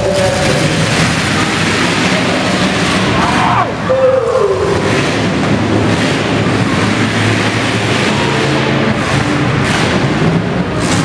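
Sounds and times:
car engines revving: 0.0s - 11.0s
cars ramming: 0.0s - 11.0s.

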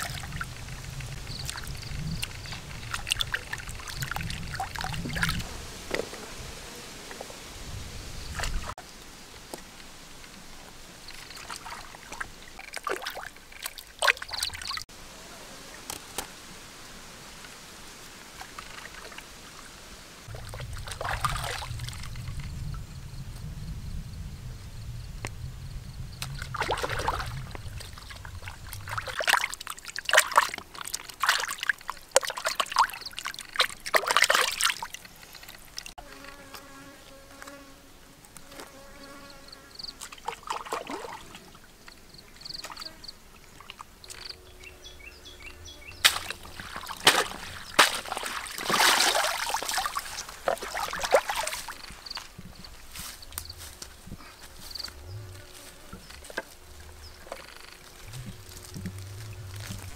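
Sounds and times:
stream water trickling: 0.0s - 6.1s, 7.1s - 15.0s, 15.8s - 22.8s, 26.2s - 36.7s, 39.8s - 59.9s
fly buzzing: 36.0s - 40.0s, 44.0s - 48.4s, 53.2s - 59.9s
rustling in woven basket: 46.0s - 59.9s.

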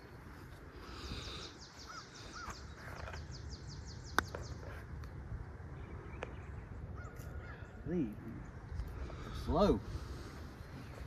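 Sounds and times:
bird trilling: 1.0s - 4.8s.

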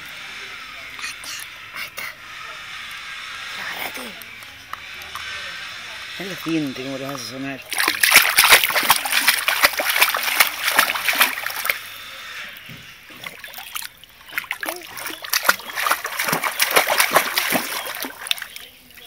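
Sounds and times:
pool water splashing: 6.4s - 12.1s, 13.0s - 19.0s.

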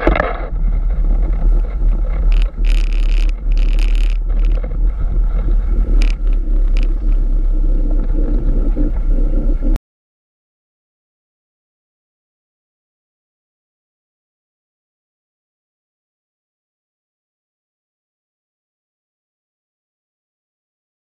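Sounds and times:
wind buffeting microphone: 0.0s - 9.8s.

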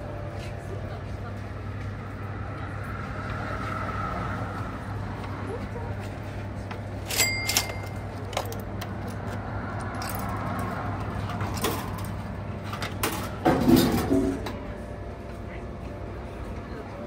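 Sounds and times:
coin clinking into vending machine: 7.0s - 9.2s, 9.8s - 10.7s, 11.5s - 12.1s
coin mechanism clicks: 7.0s - 9.2s.

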